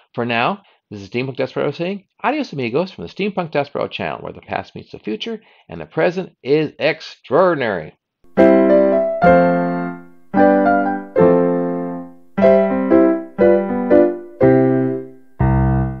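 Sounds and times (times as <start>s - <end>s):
piano chords ringing: 8.3s - 16.0s.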